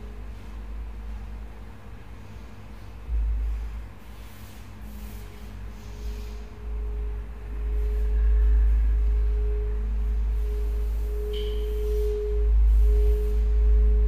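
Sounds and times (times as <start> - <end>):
deep low rumble: 0.0 - 14.0
steady pure tone: 0.0 - 14.0
brief higher tone: 6.9 - 14.0.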